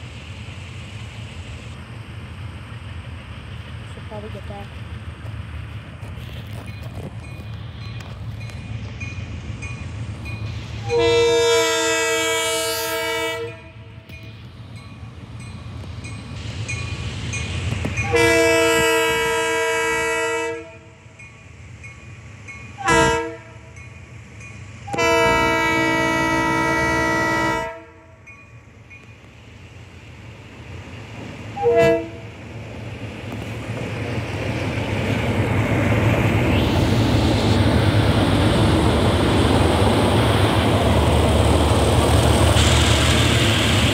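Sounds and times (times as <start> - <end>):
diesel engine and train rumble: 0.0 - 43.9
locomotive air horn blasts: 10.8 - 13.9, 18.0 - 20.9, 22.8 - 23.7, 24.9 - 28.2, 31.6 - 32.2.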